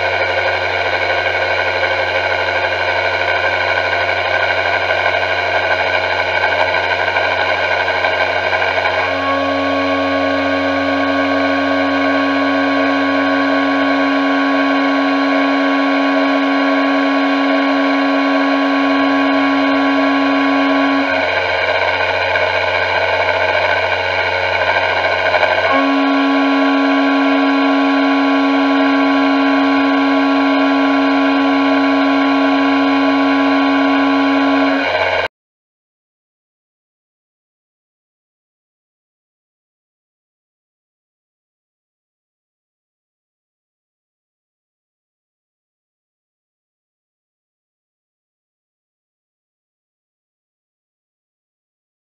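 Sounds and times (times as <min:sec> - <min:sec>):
high-pitched milling cutting tone: 0:00.0 - 0:35.3.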